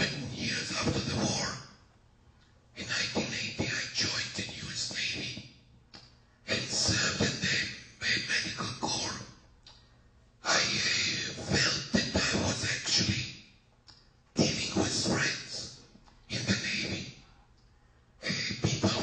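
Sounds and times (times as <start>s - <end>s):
distorted person speaking: 0.0s - 1.6s, 2.8s - 5.4s, 6.5s - 9.3s, 10.4s - 13.3s, 14.4s - 17.2s, 18.2s - 19.0s.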